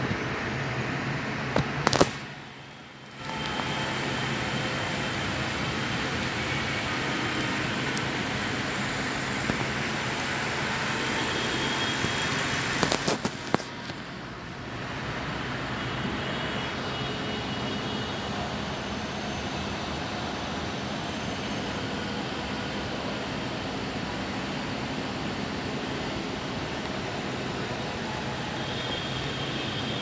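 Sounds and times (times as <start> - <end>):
steady rushing noise: 0.0 - 16.6.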